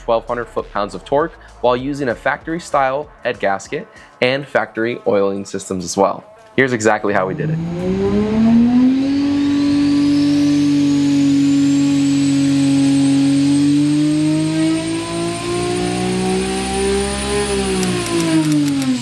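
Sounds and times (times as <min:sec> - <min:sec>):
high turbo whistle: 0:07.1 - 0:18.5
engine revving on dyno: 0:07.1 - 0:19.0
sharp clicks: 0:17.6 - 0:19.0.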